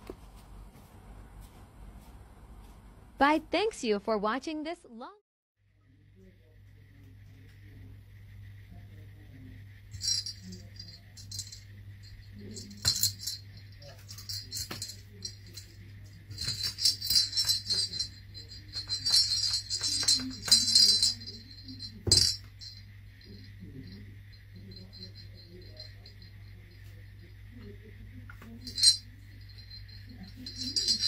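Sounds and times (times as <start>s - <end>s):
small bell jingling: 9.9s - 31.0s.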